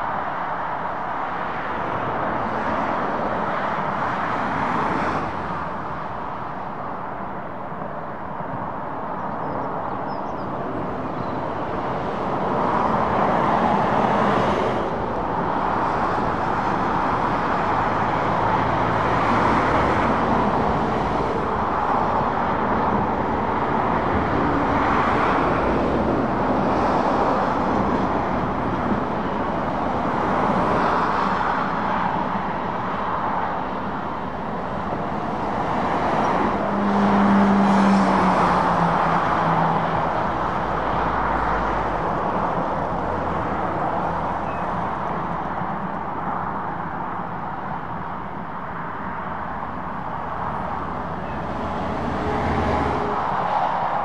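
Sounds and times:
traffic tyre noise: 0.0s - 54.0s
lorry passing close: 50.2s - 54.0s.

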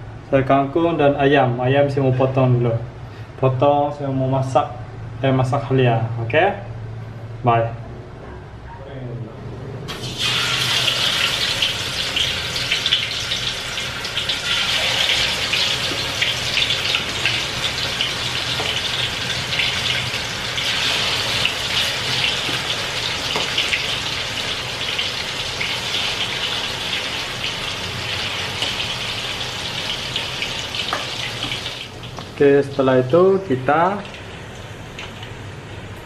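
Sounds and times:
chicken deep-frying in oil: 9.9s - 35.5s.

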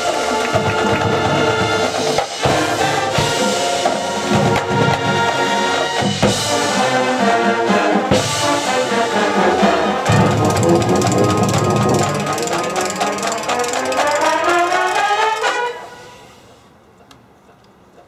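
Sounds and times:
brass section holding chords: 0.0s - 16.4s
sharp drum hits: 10.1s - 13.3s.

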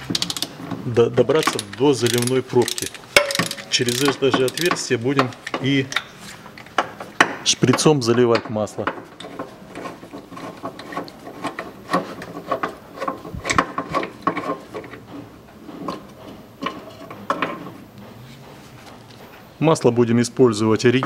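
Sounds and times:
ratchet wrench clicking: 0.1s - 0.5s, 1.4s - 5.6s
small metal knocks: 1.4s - 14.9s.

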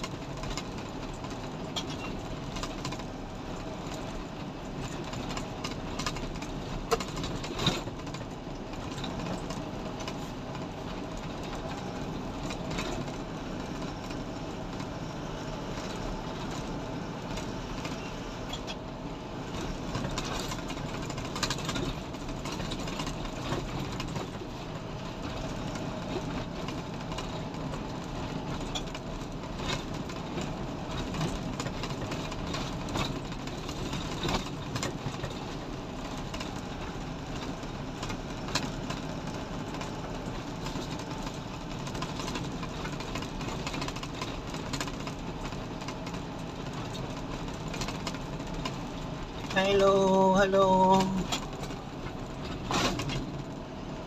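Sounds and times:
truck engine running: 0.0s - 54.0s
clicks and rattles: 4.8s - 10.2s, 19.9s - 24.4s, 25.3s - 49.8s.

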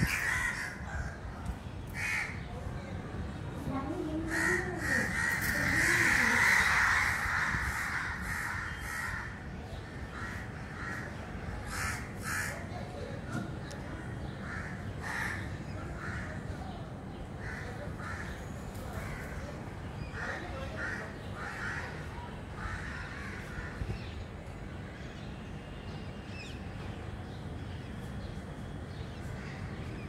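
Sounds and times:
crows cawing: 0.0s - 1.2s, 1.9s - 2.5s, 4.2s - 12.7s, 14.4s - 16.6s, 17.4s - 19.5s, 20.1s - 24.0s.

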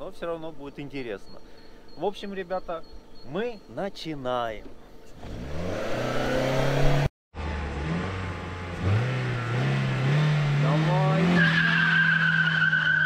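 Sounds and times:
car engine revving: 5.2s - 12.4s
tyres squealing: 10.9s - 13.0s.

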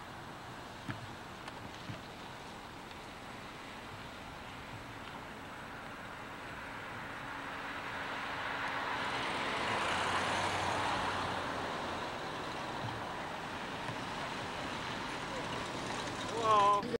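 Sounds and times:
car driving past: 3.0s - 16.8s.

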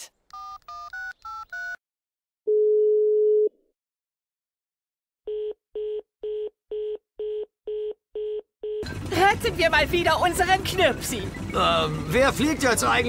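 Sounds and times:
keypad dialing tones: 0.3s - 1.8s.

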